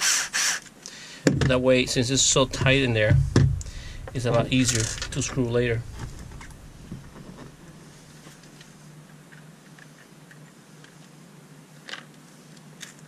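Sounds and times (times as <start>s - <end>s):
faint low hum: 1.4s - 8.8s.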